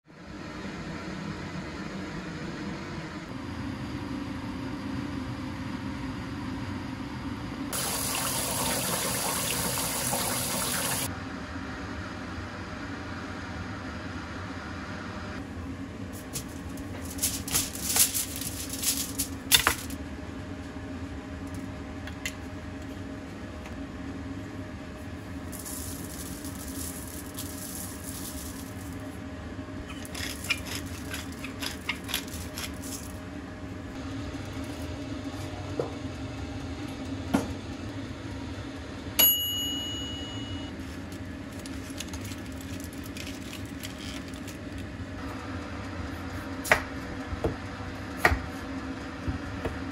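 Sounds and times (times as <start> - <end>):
steady low hum: 11.0 - 49.9
aluminium foil crinkling: 16.2 - 20.0, 25.4 - 29.2, 29.9 - 33.2, 40.8 - 44.9
sharp ring: 39.2 - 40.7.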